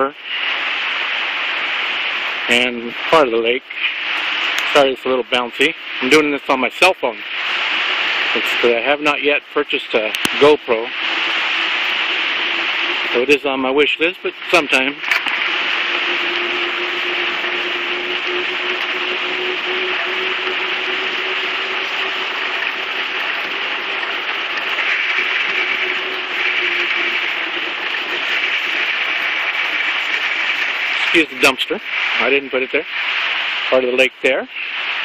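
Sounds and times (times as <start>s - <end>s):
faint steady hum: 0.0s - 35.0s
bicycle freewheel ratcheting: 11.0s - 13.0s, 15.0s - 31.1s.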